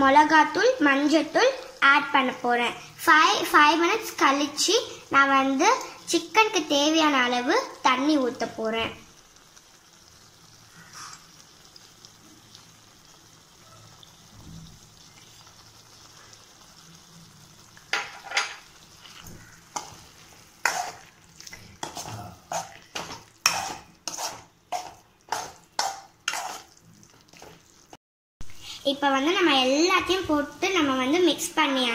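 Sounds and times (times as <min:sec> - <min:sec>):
faint frying sizzle: 0:00.0 - 0:31.9
spoon scraping in a pan: 0:10.7 - 0:11.4, 0:17.7 - 0:27.8.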